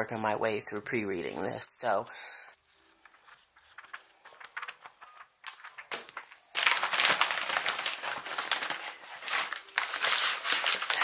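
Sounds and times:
book pages riffling: 0:02.7 - 0:11.0
paper bag crinkling: 0:02.9 - 0:11.0.

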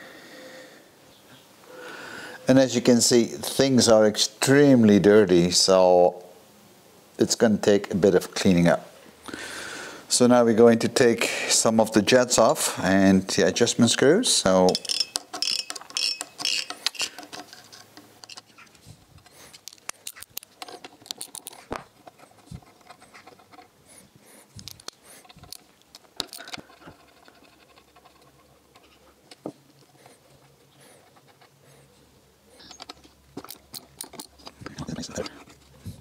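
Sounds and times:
light metallic clicks and scratches: 0:14.6 - 0:36.0.

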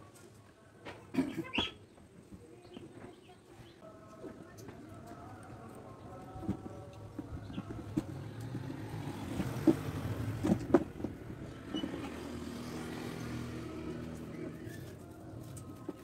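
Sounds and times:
vehicle engine humming: 0:03.8 - 0:16.0.

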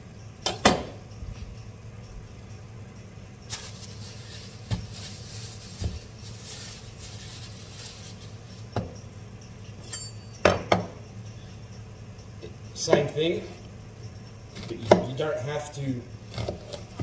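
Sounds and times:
plastic bag rustling: 0:03.5 - 0:08.7.

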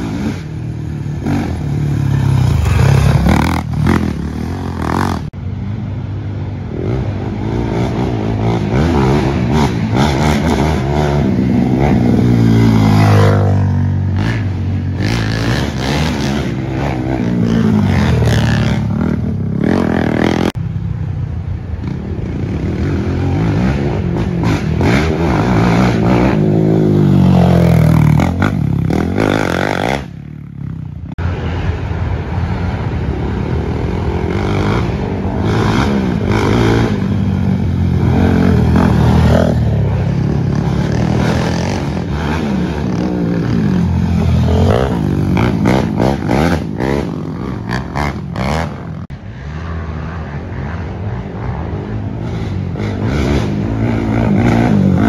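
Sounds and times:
quad bike engines revving: 0:00.0 - 0:55.0.

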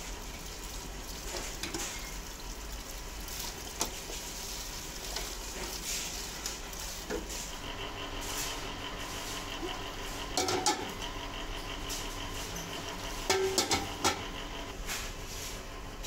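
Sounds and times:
hot water hissing and splashing: 0:00.0 - 0:11.2
metal pots clinking: 0:10.4 - 0:11.0, 0:13.2 - 0:14.3.

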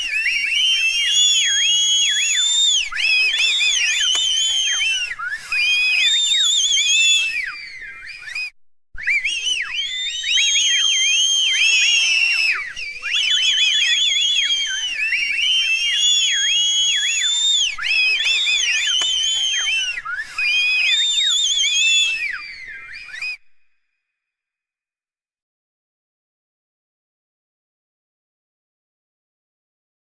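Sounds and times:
crowd whistling: 0:00.0 - 0:23.9.

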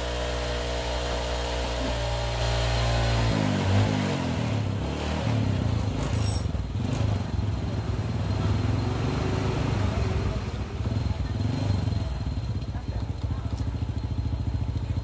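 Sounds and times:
small engine idling: 0:05.6 - 0:15.0.

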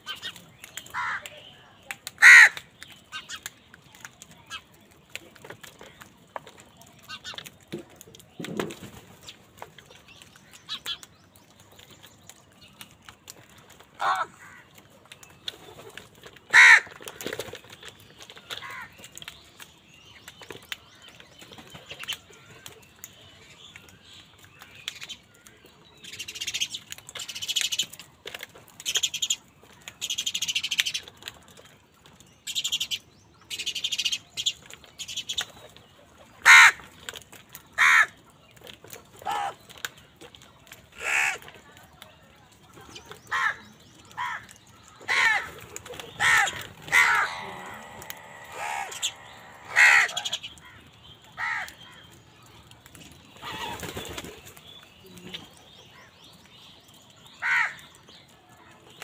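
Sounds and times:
crows cawing: 0:00.9 - 0:01.3, 0:02.2 - 0:02.7, 0:14.0 - 0:14.7, 0:16.5 - 0:17.0, 0:18.6 - 0:19.0, 0:36.4 - 0:36.8, 0:37.8 - 0:38.1, 0:41.0 - 0:41.4, 0:44.2 - 0:44.5, 0:45.1 - 0:45.6, 0:46.2 - 0:50.8, 0:51.4 - 0:51.8, 0:57.4 - 0:57.8
wings flapping: 0:45.1 - 0:50.4, 0:53.4 - 0:54.6.

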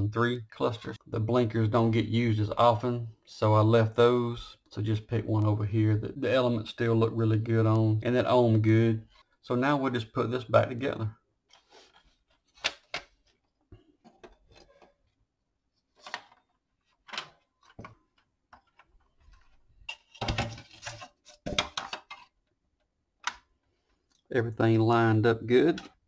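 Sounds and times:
plastic clicks and knocks: 0:17.0 - 0:22.5.

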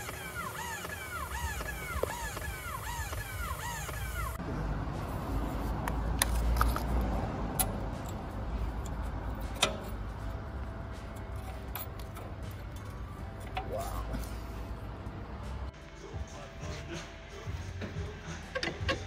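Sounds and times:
sharp clicks of brake parts: 0:05.8 - 0:13.7.

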